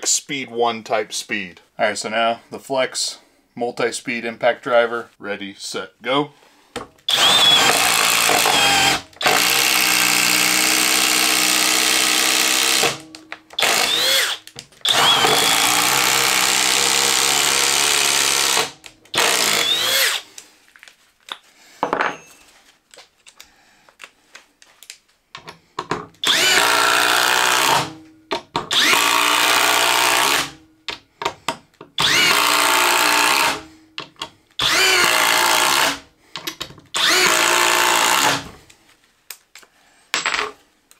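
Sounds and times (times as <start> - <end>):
impact driver driving screws: 7.1 - 20.3, 26.2 - 28.0, 28.7 - 30.6, 32.0 - 33.6, 34.2 - 38.5.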